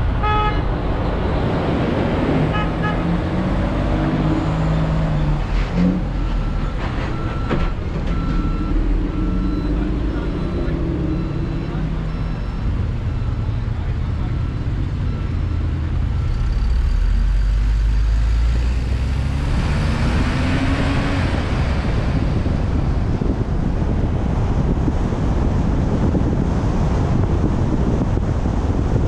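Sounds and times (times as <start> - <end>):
engine and tyre noise: 0.0 - 29.0
vehicle road rumble: 0.0 - 29.0
wind buffeting microphone: 19.3 - 29.0.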